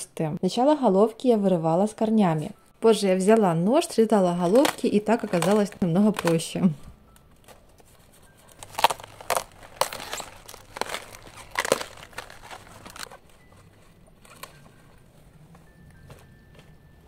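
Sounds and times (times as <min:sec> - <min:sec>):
cabbage leaves rustling and crunching: 0:08.5 - 0:13.6.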